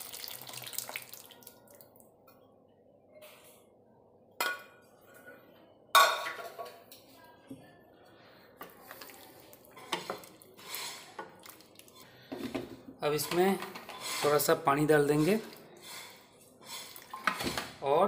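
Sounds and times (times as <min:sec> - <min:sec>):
wooden spoon stirring in pan: 0:08.6 - 0:12.0, 0:13.2 - 0:17.4.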